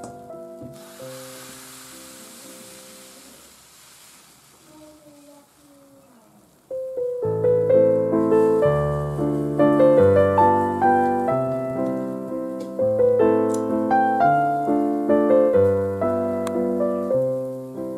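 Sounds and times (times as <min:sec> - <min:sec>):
piano music with struck chords: 0:00.0 - 0:03.2, 0:06.7 - 0:17.9.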